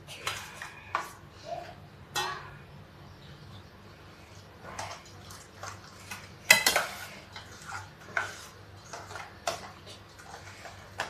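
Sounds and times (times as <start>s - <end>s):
spoon clinking and scraping bowl: 4.8s - 11.0s.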